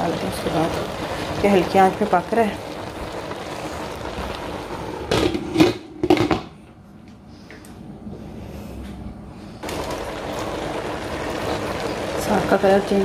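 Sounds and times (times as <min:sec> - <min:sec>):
greens simmering in water: 0:00.0 - 0:05.4, 0:09.6 - 0:13.0.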